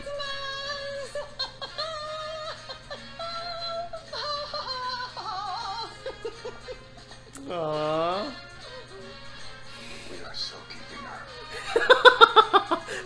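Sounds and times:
woman singing: 0.0 - 6.1.

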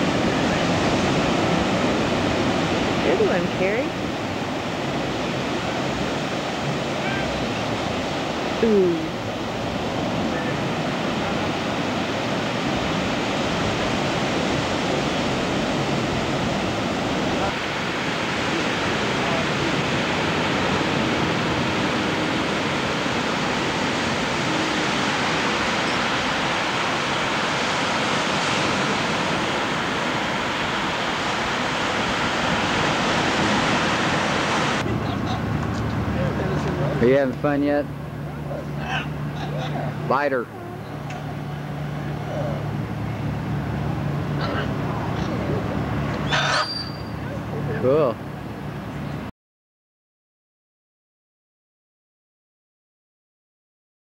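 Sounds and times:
wind on microphone: 0.0 - 36.9
ocean waves breaking: 0.0 - 49.3.

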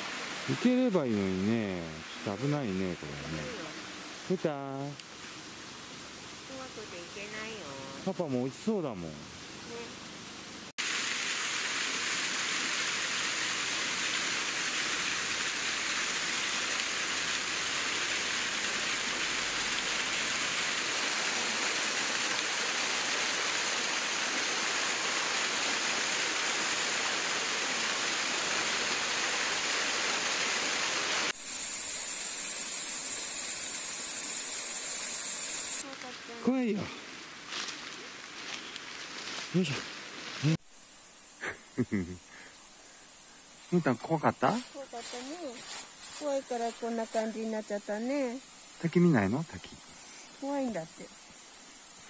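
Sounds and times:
waterfall splashing: 0.0 - 4.8, 10.8 - 31.4.

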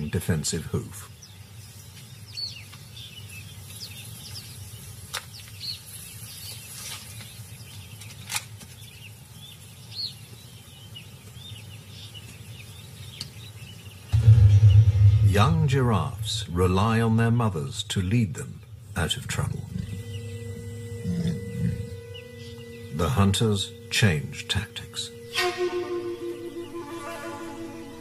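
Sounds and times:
small birds chirping: 0.0 - 14.8, 16.6 - 25.3
low steady rumble: 14.2 - 21.0.

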